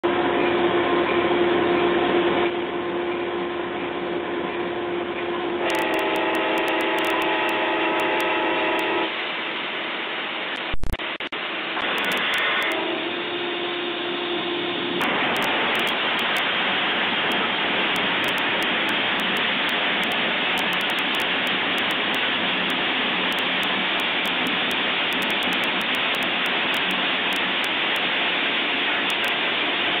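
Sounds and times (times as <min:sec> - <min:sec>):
locomotive horn chord: 0:05.6 - 0:09.1
loud rushing noise: 0:14.9 - 0:30.0.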